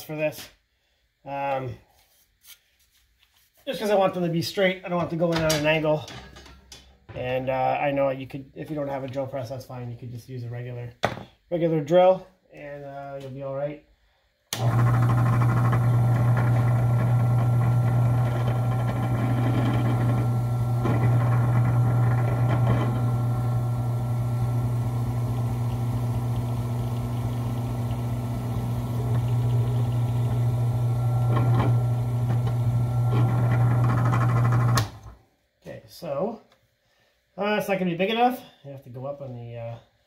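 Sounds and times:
drill bit scraping: 14.6 - 34.9
drill press motor humming: 14.6 - 35.2.

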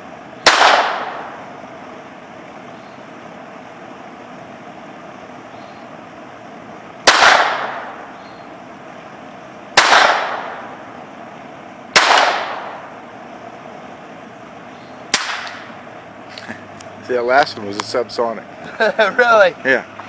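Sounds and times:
pistol shots with echo: 0.4 - 1.4, 7.0 - 8.1, 9.8 - 10.8, 12.0 - 12.9, 15.1 - 15.7.

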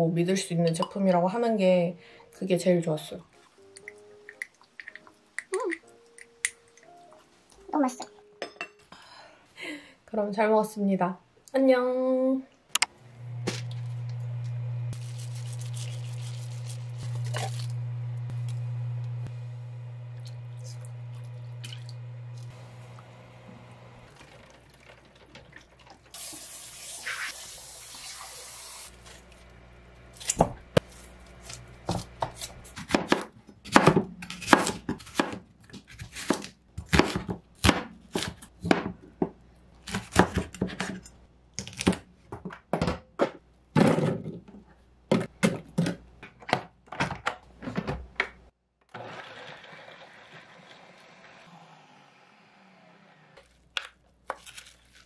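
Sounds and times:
blender running: 13.0 - 24.2, 48.9 - 53.4
knife chopping on wooden board: 31.9 - 38.9.

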